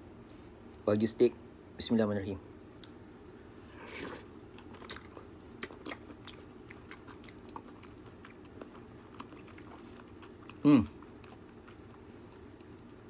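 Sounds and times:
person chewing food: 3.8s - 13.0s.

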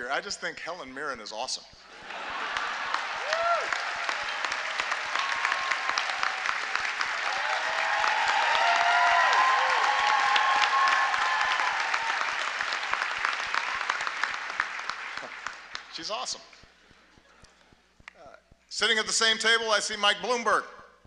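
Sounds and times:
audience clapping: 1.8s - 18.2s
people cheering: 1.9s - 16.2s.

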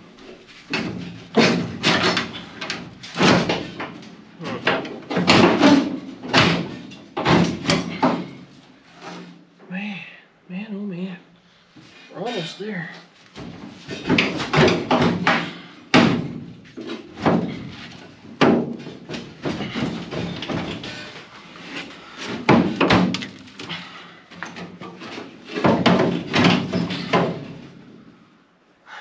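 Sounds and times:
sheet metal clanking and scraping: 0.6s - 9.3s, 13.4s - 23.4s.

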